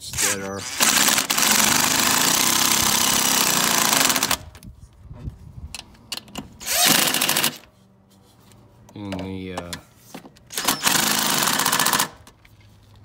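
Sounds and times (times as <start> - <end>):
impact driver running: 0.6 - 4.5, 6.6 - 7.7, 10.5 - 12.3.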